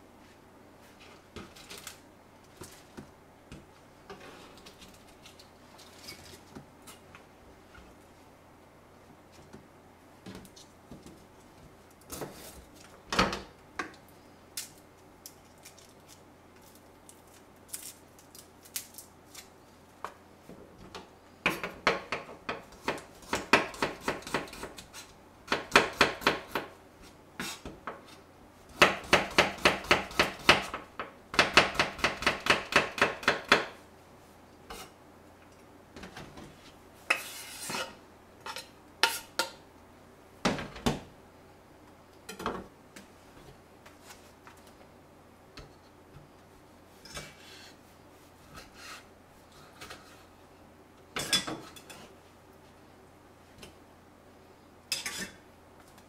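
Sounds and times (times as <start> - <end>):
knife chopping on wooden board: 28.8 - 30.8
knife scraping board: 37.1 - 39.3, 48.5 - 50.2.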